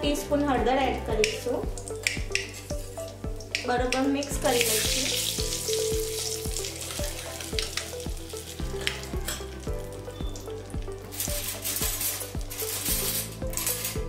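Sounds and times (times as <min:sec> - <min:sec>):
spices sizzling in hot oil: 0:01.2 - 0:13.5
metal spatula stirring: 0:11.0 - 0:14.0.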